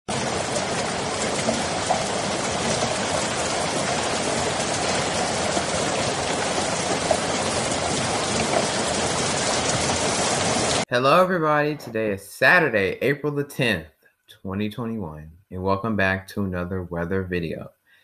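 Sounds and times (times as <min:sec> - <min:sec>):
rain drop ticks: 0:00.1 - 0:10.8
steady rain falling: 0:00.1 - 0:10.9.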